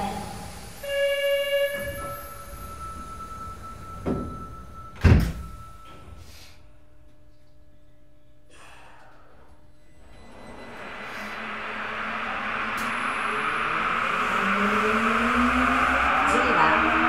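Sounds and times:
high door warning tone: 0.0 - 6.3, 9.8 - 17.0
faint train equipment hum: 0.0 - 17.0
train doors thudding shut: 4.0 - 5.6.

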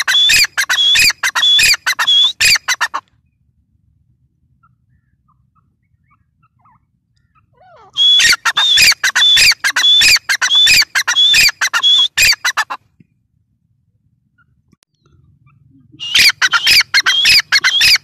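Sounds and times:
shrill bird call: 0.0 - 3.0, 7.2 - 12.7, 16.0 - 18.0
faint bird chirps: 4.5 - 12.7, 14.3 - 18.0.

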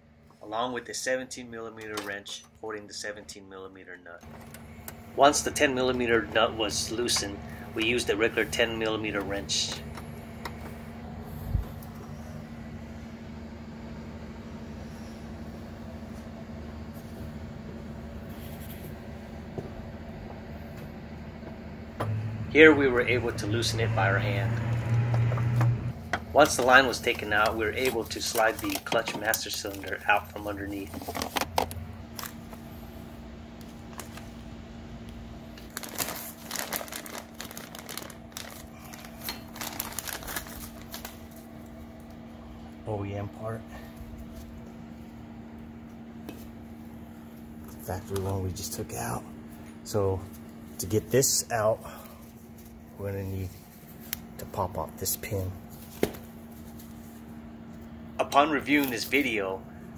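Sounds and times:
low mechanical hum: 0.0 - 59.9
plastic bag crinkling: 35.6 - 41.6.

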